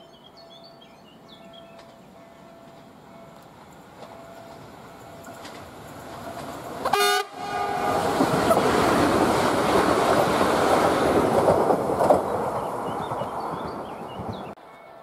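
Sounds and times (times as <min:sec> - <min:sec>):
train wheel and rail noise: 0:00.0 - 0:15.0
train horn blast: 0:06.8 - 0:08.8.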